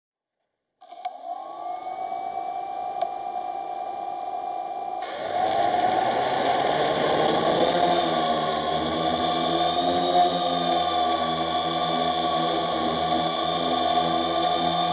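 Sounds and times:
drone propellers whirring: 0.9 - 14.9.

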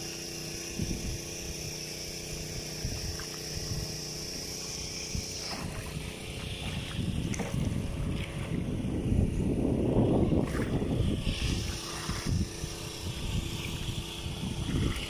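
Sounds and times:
high steady drone: 0.0 - 15.0
steady low hum: 0.0 - 15.0
water lapping: 4.5 - 8.9, 10.4 - 15.0.

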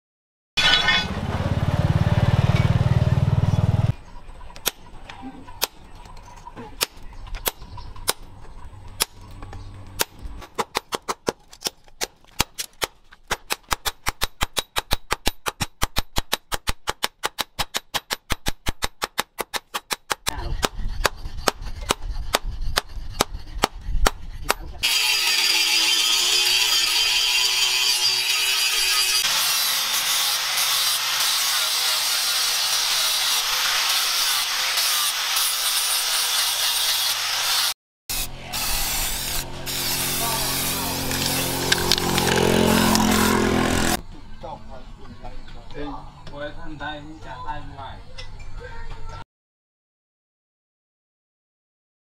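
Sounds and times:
hammer striking metal on anvil: 0.6 - 1.2
angle grinder cutting steel: 0.6 - 4.0, 24.4 - 44.0.

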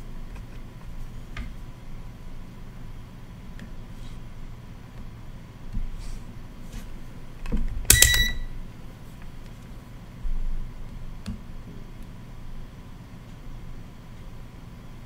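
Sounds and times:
high electronic beep: 7.9 - 8.5.

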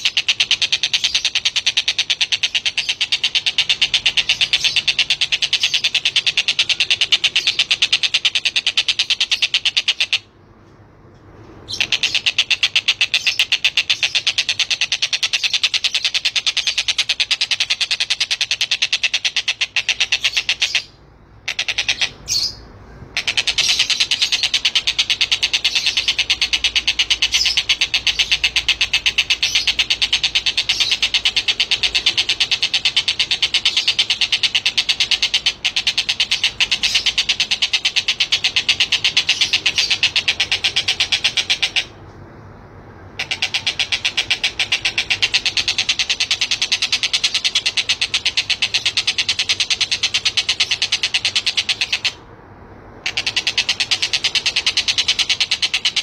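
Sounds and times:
kingfisher rattling trill: 0.0 - 10.3, 23.2 - 42.0, 43.1 - 52.2, 52.9 - 56.0.

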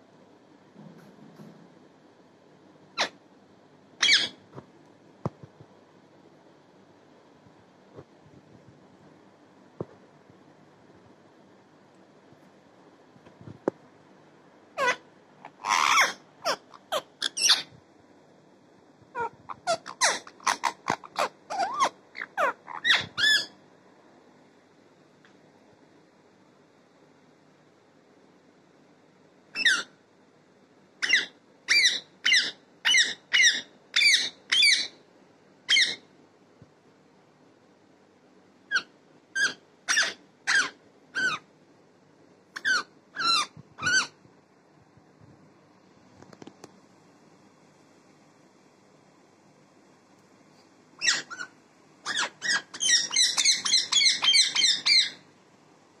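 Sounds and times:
parakeet high-pitched calls: 2.9 - 3.2, 4.0 - 4.4, 14.8 - 17.7, 19.1 - 23.6, 29.5 - 30.0, 31.0 - 35.0, 35.7 - 36.1, 38.7 - 41.5, 42.5 - 44.2, 51.0 - 55.3.

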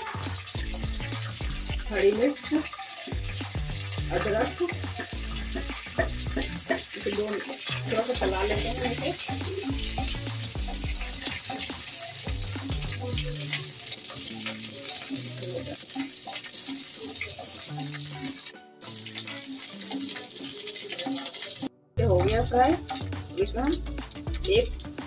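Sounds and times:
background music with bass line: 0.0 - 2.3, 3.1 - 13.6, 22.0 - 25.0
spatula stirring: 0.0 - 23.5
oil sizzling and spluttering: 0.0 - 25.0.

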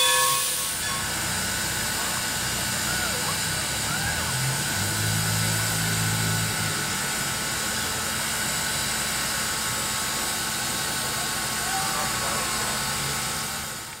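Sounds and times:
steam hissing: 0.0 - 14.0.

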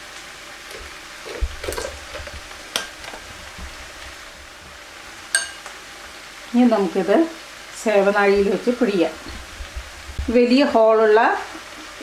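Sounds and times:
crinkling handling noise: 0.6 - 4.3
glass clink: 5.3 - 5.6.

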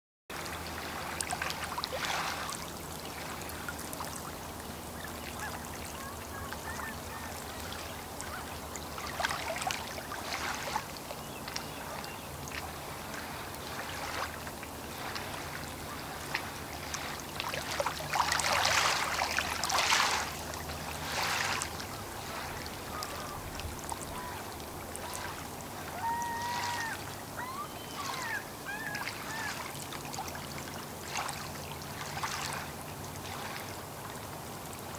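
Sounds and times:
waves lapping on shore: 0.3 - 34.9
birds calling faintly: 4.5 - 14.2, 20.0 - 29.8.

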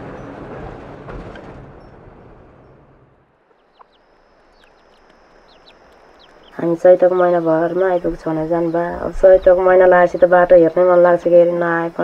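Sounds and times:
bus engine: 0.0 - 12.0
tyres crunching on dirt road: 3.5 - 10.7
small birds chirping: 3.5 - 12.0
steady high-pitched whine: 3.5 - 12.0.

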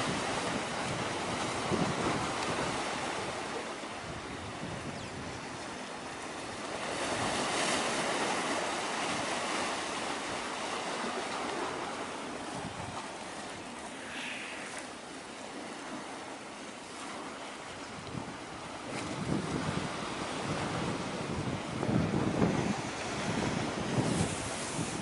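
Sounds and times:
wind on the microphone: 0.0 - 9.6, 12.4 - 14.9, 17.8 - 25.0
waves: 0.0 - 25.0.

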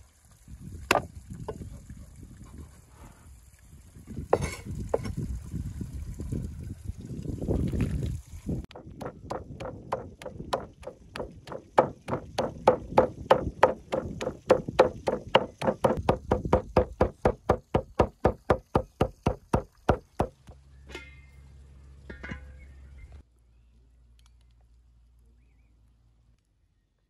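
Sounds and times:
cleaver chopping meat on wood: 8.7 - 20.4.

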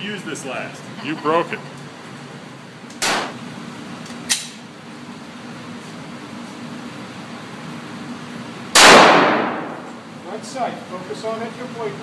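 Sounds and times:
handgun shot: 3.0 - 3.3, 8.8 - 9.7
sharp click: 4.3 - 4.6.

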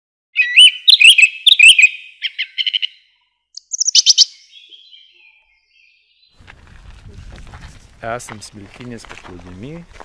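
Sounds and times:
songbird singing: 0.4 - 6.5.

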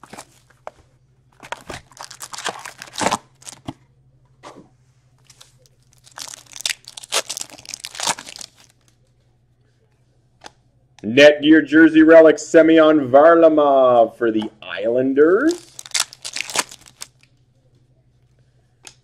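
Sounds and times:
foil card pack crinkling and tearing: 1.4 - 3.6, 5.2 - 8.8, 15.4 - 17.3
plastic shrink-wrap crinkling and tearing: 1.4 - 3.6, 5.2 - 8.9, 15.4 - 17.3.

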